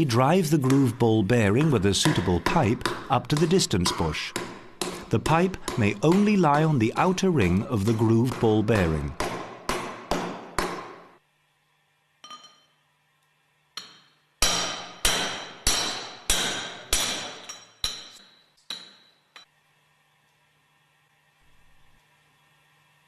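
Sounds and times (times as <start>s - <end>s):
hammer striking steel pipe: 0.6s - 11.1s, 13.8s - 19.2s.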